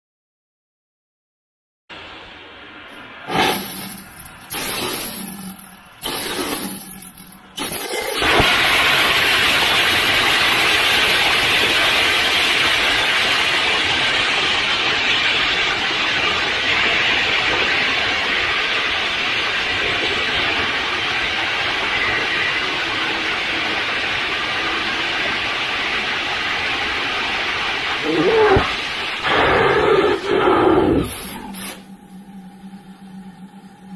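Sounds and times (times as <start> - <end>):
rocket engine short bursts: 2.9 - 16.5, 24.3 - 32.1
rocket engine roaring: 22.6 - 33.6.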